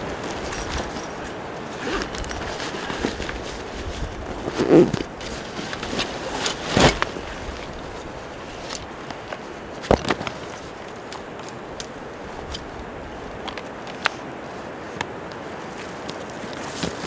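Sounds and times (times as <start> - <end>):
backpack rustling and scraping: 0.0 - 17.0.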